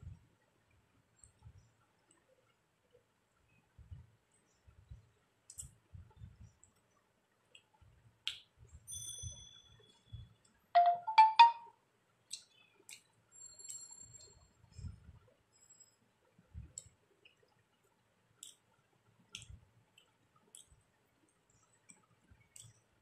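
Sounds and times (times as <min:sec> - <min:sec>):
electronic chime: 0:10.8 - 0:11.7.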